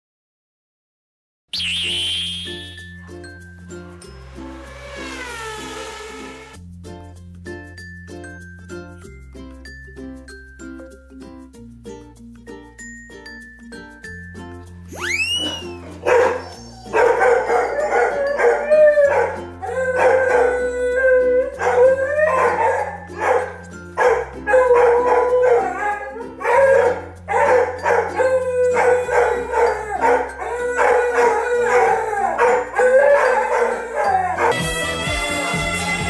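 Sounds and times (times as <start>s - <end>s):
dog howling: 4.7s - 6.5s, 15.0s - 34.6s
dog barking: 15.4s - 19.4s, 21.6s - 25.8s, 26.4s - 28.2s, 28.8s - 34.6s
background music with bass line: 34.3s - 36.0s.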